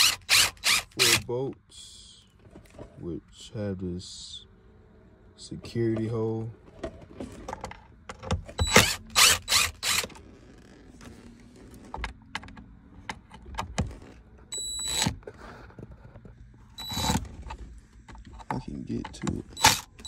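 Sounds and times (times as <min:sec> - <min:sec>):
cordless drill spinning: 0:00.0 - 0:01.2, 0:08.6 - 0:10.8, 0:16.8 - 0:17.2.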